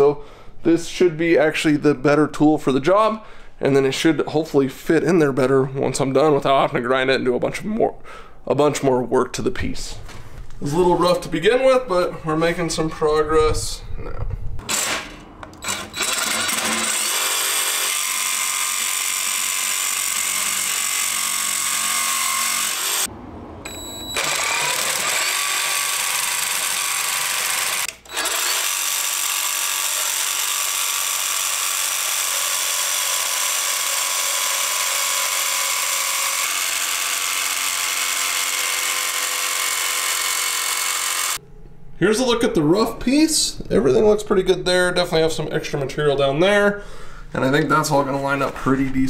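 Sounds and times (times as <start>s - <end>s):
jigsaw cutting sheet metal: 14.6s - 23.1s, 24.2s - 41.4s.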